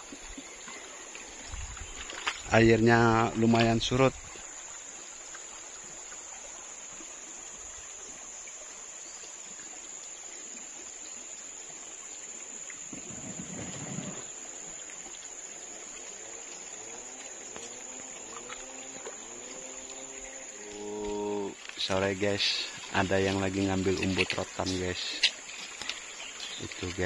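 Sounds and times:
shallow river flowing: 0.0s - 27.0s
high-pitched insect drone: 1.8s - 25.6s.

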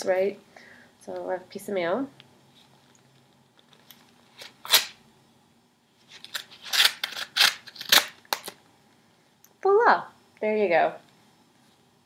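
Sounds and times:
letter opener ripping paper: 4.4s - 5.0s, 6.2s - 8.6s.

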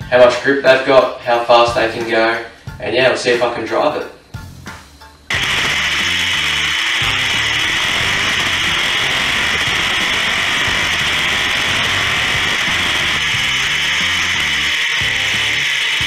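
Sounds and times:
background music with bass line: 0.0s - 16.0s
race car engine at speed: 5.4s - 16.0s.

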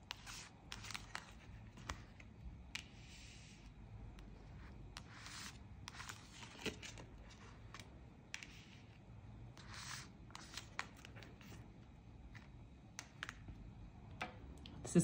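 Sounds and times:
cards sliding on table: 9.6s - 11.5s.

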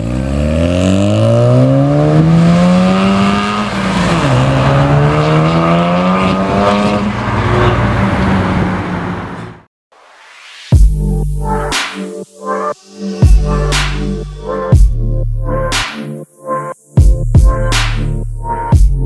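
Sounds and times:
rotary engine revving hard: 0.0s - 9.4s.

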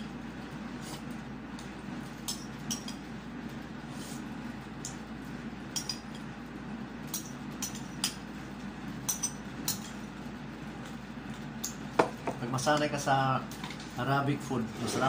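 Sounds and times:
steady low hum: 0.0s - 15.0s
metal spoon clinking against bowl: 5.7s - 6.2s.

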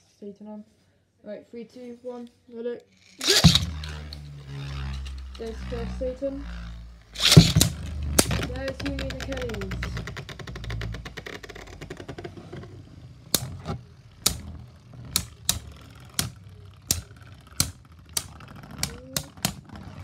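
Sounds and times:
spinning tops rattling: 2.9s - 12.1s, 12.9s - 20.0s
plastic tops clacking together: 13.3s - 19.8s.

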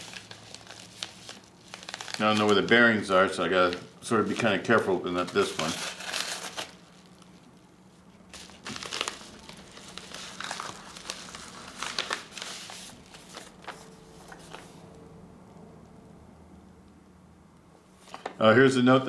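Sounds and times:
wrapping crinkling and tearing: 0.0s - 15.0s
faint steady hum: 0.0s - 19.0s.

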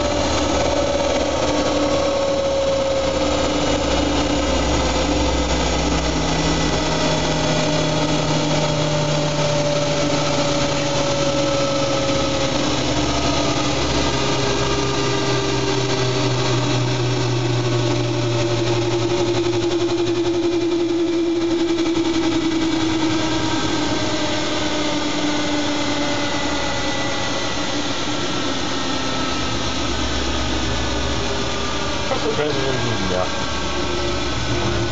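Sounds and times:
washing machine running: 0.0s - 34.9s
whining motor tones: 0.0s - 34.9s.

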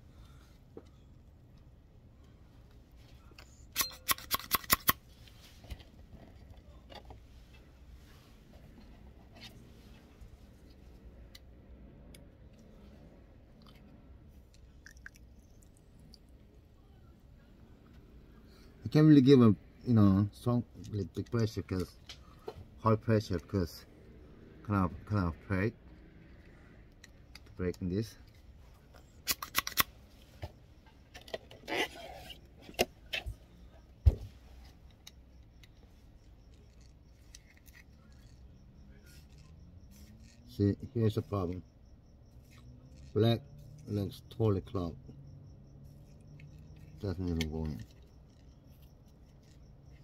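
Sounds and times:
low steady hum: 0.0s - 50.0s
small clicks and ticks: 45.4s - 50.0s.

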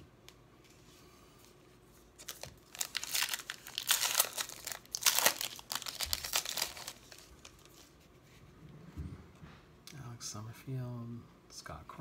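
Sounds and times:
card pack wrapper tearing and crinkling: 2.2s - 7.9s.

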